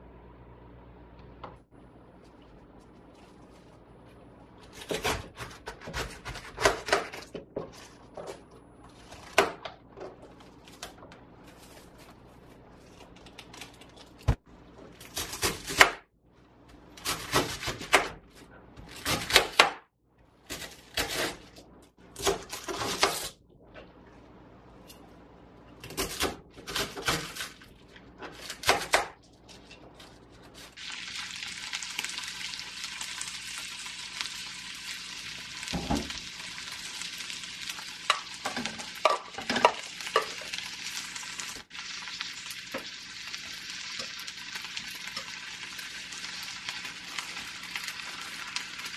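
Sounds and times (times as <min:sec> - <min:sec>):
knife cutting crunchy cabbage: 0:04.6 - 0:07.9, 0:20.5 - 0:21.6
cabbage sizzling in oil: 0:30.7 - 0:48.9.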